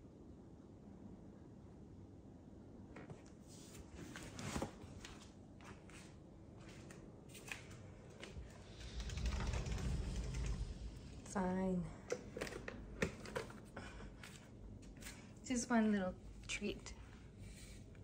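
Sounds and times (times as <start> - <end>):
sliding wardrobe door rolling open: 8.1 - 13.2.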